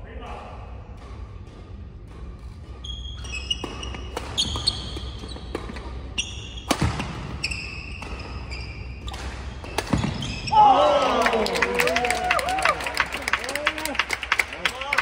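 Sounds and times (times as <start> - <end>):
rackets striking shuttlecock: 2.0 - 10.5
shoes squeaking on court floor: 2.1 - 10.6.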